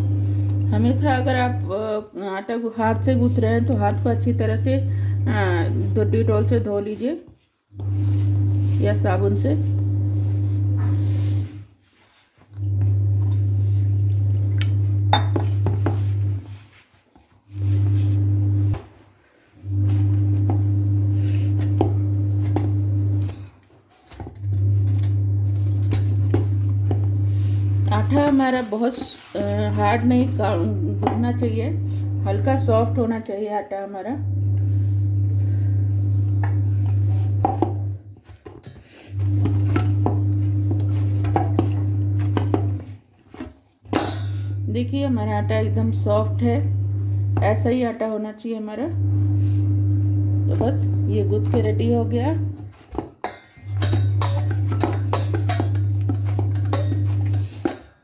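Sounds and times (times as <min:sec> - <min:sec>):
hands mixing dough in bowl: 0:00.0 - 0:33.7, 0:34.3 - 0:47.9, 0:49.3 - 0:58.0
clinks against metal bowl: 0:15.1 - 0:15.4
knocks and clinks on metal bowl: 0:15.1 - 0:16.0, 0:43.9 - 0:44.5, 0:53.2 - 0:57.9
hands kneading dough: 0:25.3 - 0:31.4
loud low hum: 0:34.2 - 0:37.9, 0:49.0 - 0:52.6.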